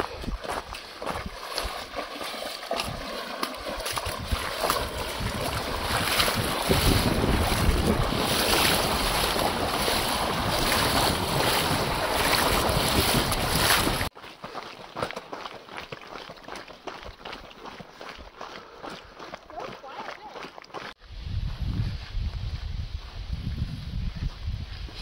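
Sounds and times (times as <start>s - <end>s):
wind buffeting microphone: 0.0s - 1.8s, 2.7s - 14.1s, 21.0s - 25.0s
feet splashing through river: 0.0s - 21.0s
water rushing: 1.3s - 14.1s.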